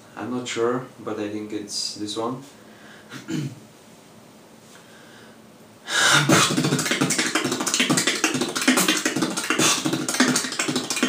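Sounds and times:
fast beatboxing: 0:05.9 - 0:11.0.

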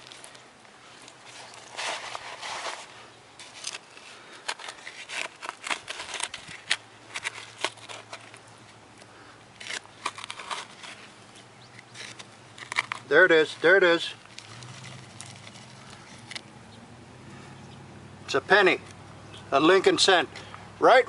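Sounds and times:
digger blade scraping gravelly soil: 0:00.0 - 0:08.4, 0:09.1 - 0:16.4.

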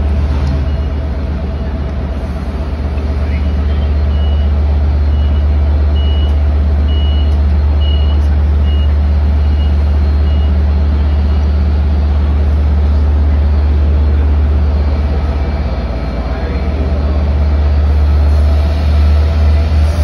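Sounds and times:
diesel train rumble: 0:00.0 - 0:20.0
door warning beeps: 0:05.1 - 0:10.6.

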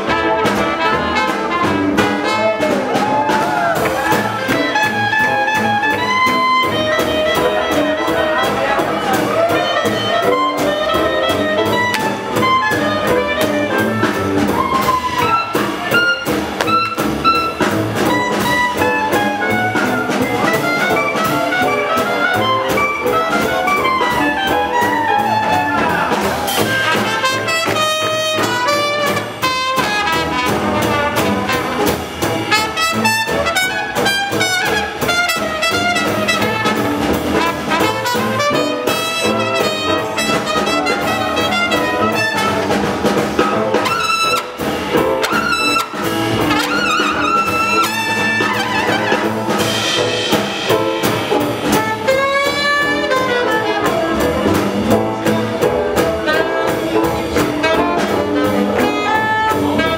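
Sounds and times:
swing jazz band playing: 0:00.0 - 0:59.9.

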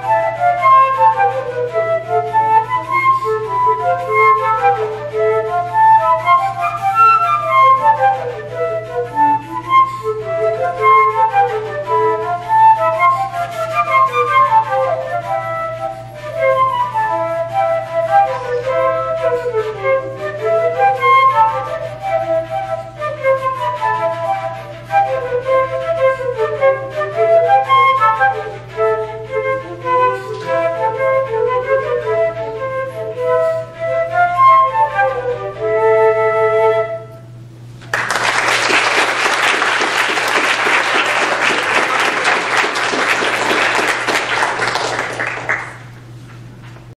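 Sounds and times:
flute duet: 0:00.0 - 0:46.7
audience applauding: 0:37.8 - 0:46.1.

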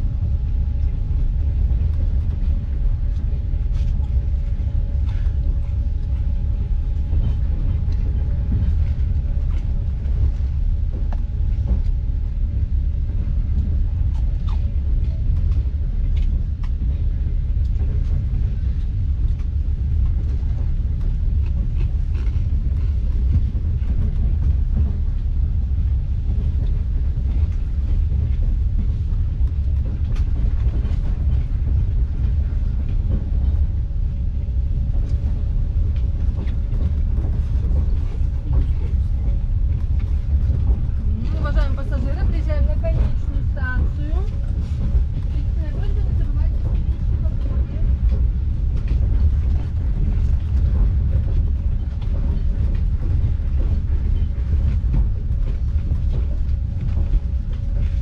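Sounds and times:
train rumble inside carriage: 0:00.0 - 0:58.0
faint clicks from running gear: 0:13.6 - 0:25.2.

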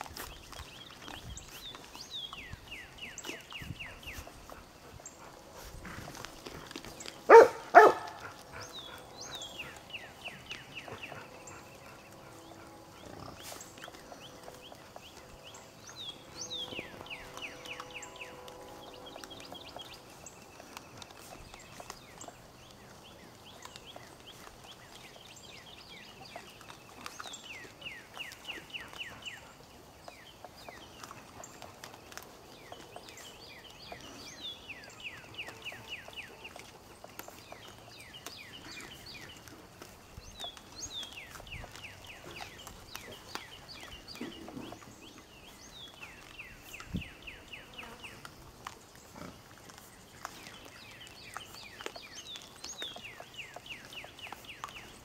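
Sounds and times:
wild boar feeding: 0:00.0 - 0:55.0.

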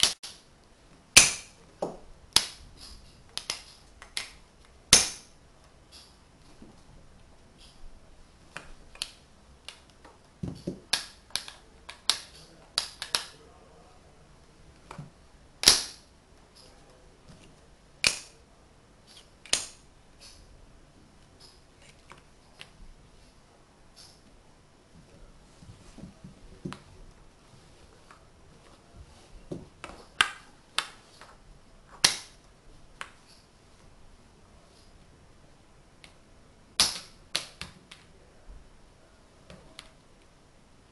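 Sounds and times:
wooden blocks clicking together: 0:01.2 - 0:05.3, 0:08.6 - 0:13.4, 0:15.6 - 0:16.0, 0:18.0 - 0:18.4, 0:19.1 - 0:20.4, 0:36.8 - 0:38.1
wooden blocks clacking together: 0:08.6 - 0:13.4.

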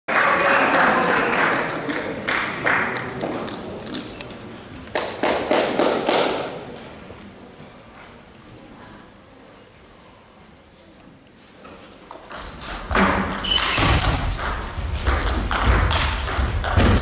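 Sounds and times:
spectators cheering and clapping: 0:00.1 - 0:03.1
table tennis ball bouncing: 0:12.1 - 0:17.0.

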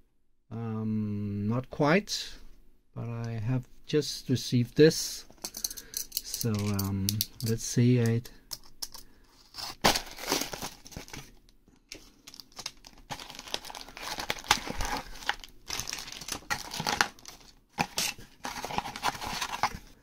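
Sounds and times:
plastic bags crinkling: 0:09.5 - 0:20.0.

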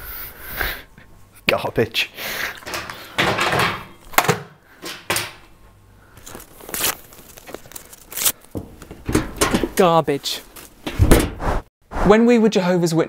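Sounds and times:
paper crumpling and tearing: 0:06.2 - 0:08.5.

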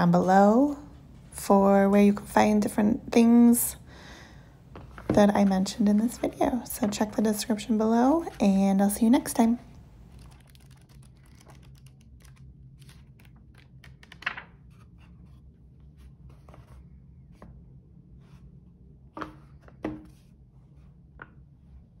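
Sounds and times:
paper pages rustling: 0:10.1 - 0:16.9
book knocking on wooden table: 0:19.2 - 0:20.2.

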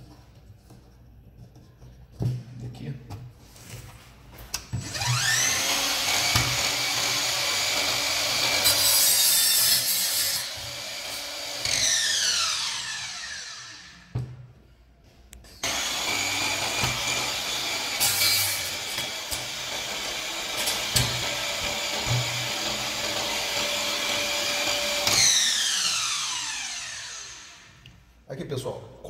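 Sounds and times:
miter saw motor whining: 0:04.8 - 0:08.6, 0:10.7 - 0:13.9, 0:15.6 - 0:27.7
saw blade cutting wood: 0:04.8 - 0:14.0, 0:15.6 - 0:27.7.

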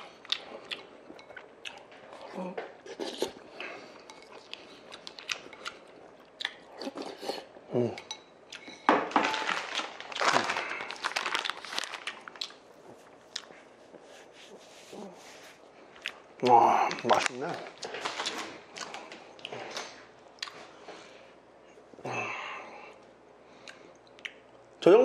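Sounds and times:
chewing: 0:00.0 - 0:08.8, 0:10.9 - 0:14.0, 0:15.8 - 0:20.7
tissue paper rustling: 0:09.4 - 0:12.4.

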